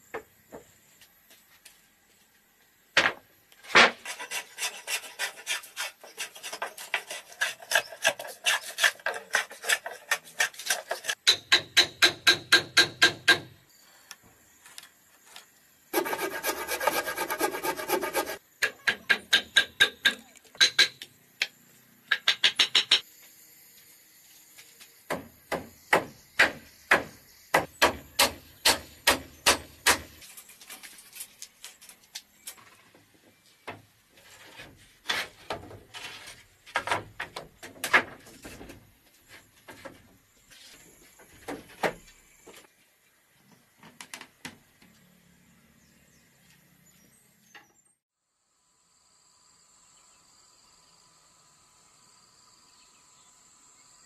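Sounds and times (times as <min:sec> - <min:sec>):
rasping strokes on timber: 0:03.9 - 0:11.3, 0:15.9 - 0:18.4
sharp wooden knocks: 0:22.1 - 0:23.0, 0:25.1 - 0:30.1.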